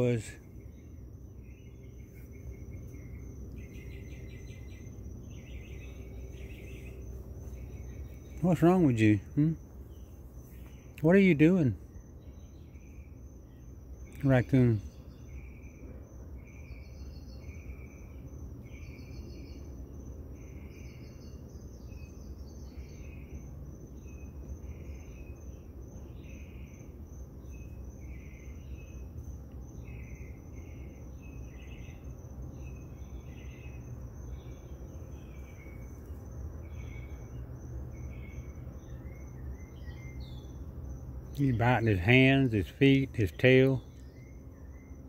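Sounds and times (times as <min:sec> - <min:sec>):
high cricket trill: 0:00.0 - 0:45.0
pulsed insect chirps: 0:00.0 - 0:45.0
steady low hum: 0:00.0 - 0:45.0.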